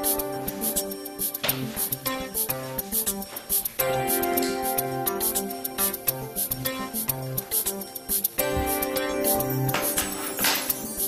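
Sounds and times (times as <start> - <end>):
instrumental music with beat: 0.0 - 11.0.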